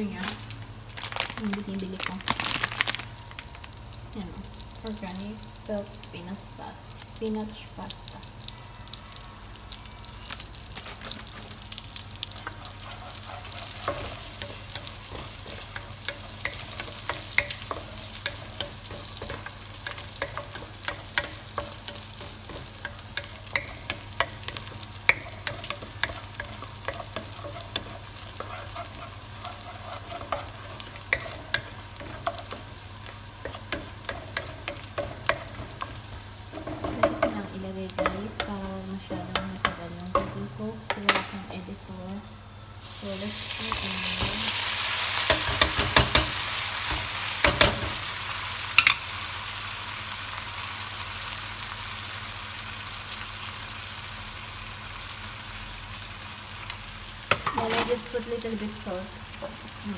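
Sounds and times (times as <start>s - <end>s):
garlic sizzling in butter: 1.3s - 41.2s, 42.8s - 59.9s
wooden spoon stirring in pan: 12.3s - 40.4s.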